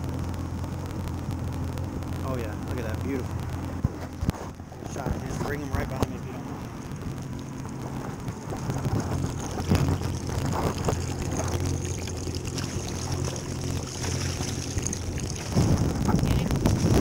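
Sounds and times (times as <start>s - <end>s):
outboard motor idling: 0.0s - 17.0s
wind on microphone: 3.8s - 17.0s.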